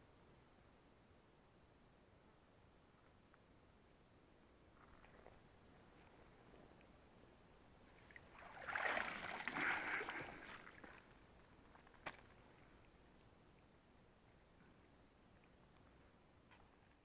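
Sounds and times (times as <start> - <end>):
water splashing off a net: 8.1 - 11.0.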